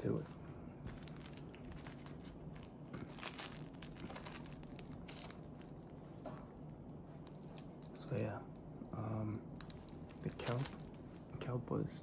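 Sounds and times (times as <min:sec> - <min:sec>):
plastic wrapper crinkling: 0:00.0 - 0:06.1, 0:09.6 - 0:11.3.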